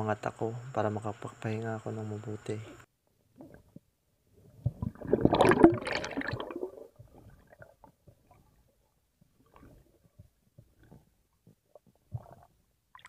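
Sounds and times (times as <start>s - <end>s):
underwater bubbling and gurgling: 4.5s - 13.0s.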